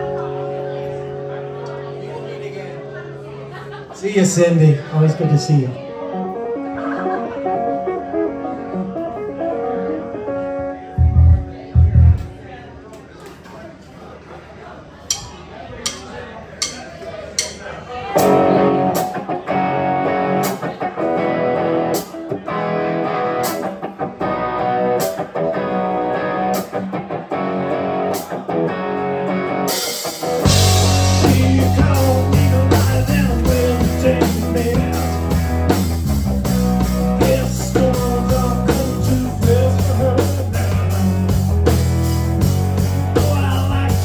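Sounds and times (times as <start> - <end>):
guitar playing rhythmic chords: 0.0 - 12.9, 15.1 - 44.0
bass and drums: 11.0 - 12.4, 23.2 - 44.0.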